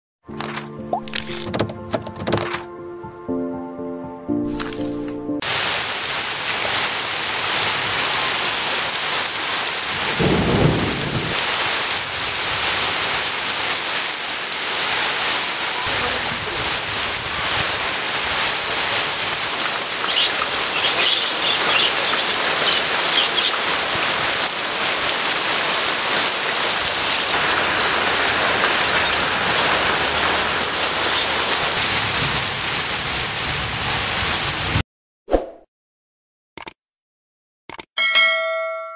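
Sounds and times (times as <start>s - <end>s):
heavy rain pouring: 5.4s - 34.8s
low rumble of thunder: 10.0s - 11.4s.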